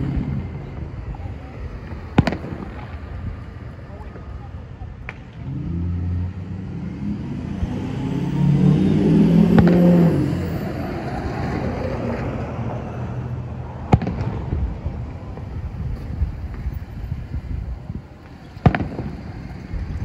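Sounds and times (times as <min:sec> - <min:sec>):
distant firework bangs: 0:00.0 - 0:05.6, 0:09.2 - 0:12.4, 0:13.7 - 0:20.0
vehicle engine passing: 0:05.1 - 0:20.0.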